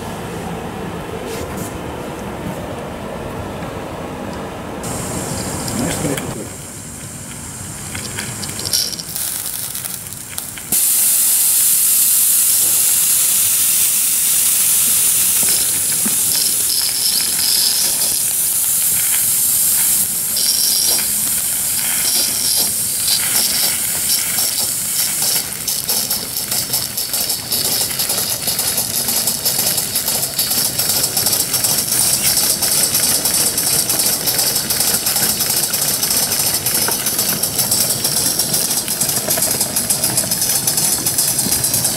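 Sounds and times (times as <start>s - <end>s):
model locomotive exhaust beats: 4.8s - 41.9s
steam hissing: 4.8s - 41.9s.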